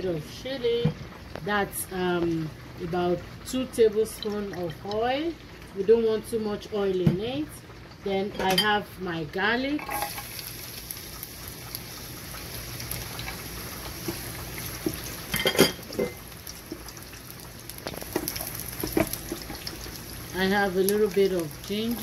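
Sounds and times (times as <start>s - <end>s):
oil sizzling in a wok: 0.0s - 22.0s
spatula knocking and scraping pan: 18.1s - 19.7s.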